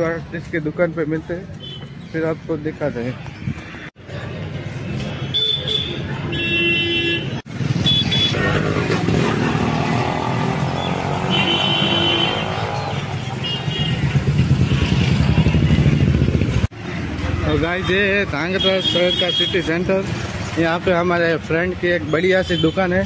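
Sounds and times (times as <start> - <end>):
vehicle horns honking: 5.3 - 8.6, 10.7 - 14.2
motorcycle engine running: 13.4 - 16.7.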